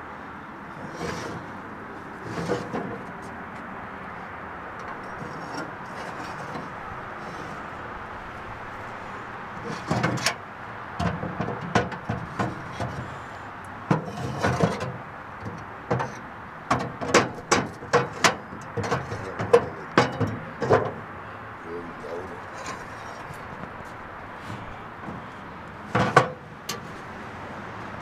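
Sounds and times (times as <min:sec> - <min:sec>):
steady background noise: 0:00.0 - 0:28.0
metal grates clanking and scraping: 0:00.7 - 0:01.5, 0:02.1 - 0:03.2, 0:04.8 - 0:07.8, 0:09.5 - 0:10.4, 0:11.0 - 0:21.1, 0:21.7 - 0:23.7, 0:24.5 - 0:27.2.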